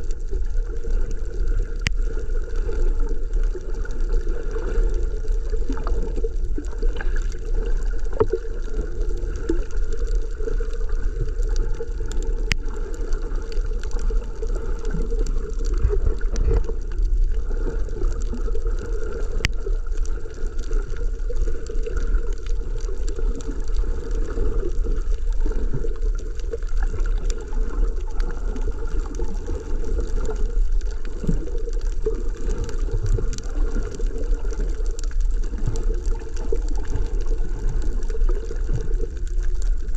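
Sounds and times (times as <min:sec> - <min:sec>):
muffled rumble of moving water: 0:00.0 - 0:39.9.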